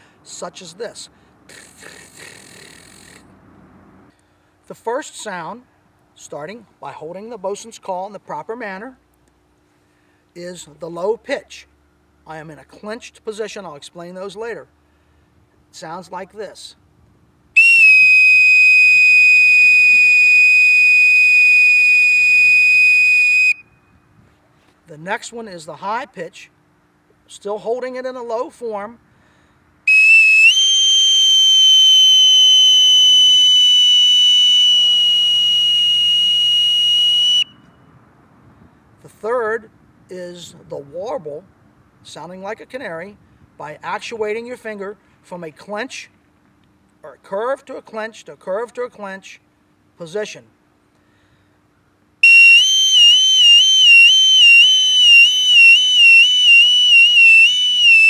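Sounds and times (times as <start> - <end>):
bosun's pipe warbling whistle: 17.6 - 23.7, 29.9 - 37.7, 52.2 - 58.0
bosun's pipe high note: 52.2 - 58.0.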